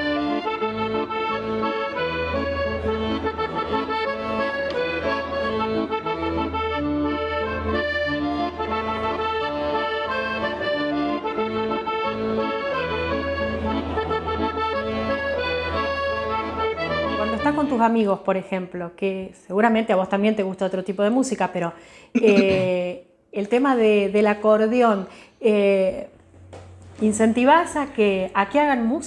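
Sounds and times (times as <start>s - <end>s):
piano accordion melody: 0.0s - 18.3s, 22.2s - 22.7s.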